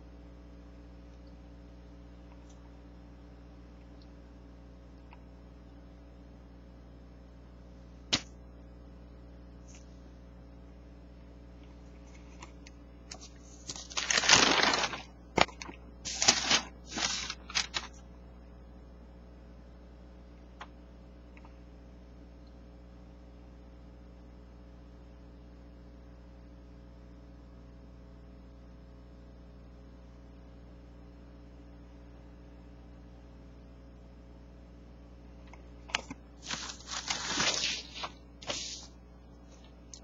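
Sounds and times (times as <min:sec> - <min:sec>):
low electrical hum: 0:00.0 - 0:40.0
glossy paper page rustling: 0:12.0 - 0:18.0, 0:35.9 - 0:38.9.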